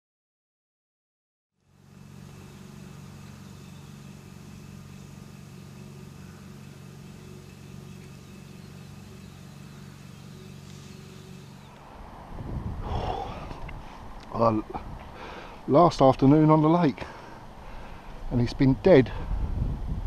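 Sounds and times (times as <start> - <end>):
low mechanical hum: 1.6 - 20.0
faint hiss: 12.8 - 19.4.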